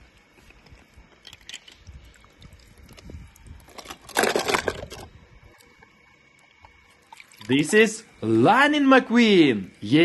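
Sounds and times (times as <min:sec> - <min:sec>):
plastic toy cars rummaged in water: 0:01.2 - 0:05.1
water sloshing: 0:01.3 - 0:07.9.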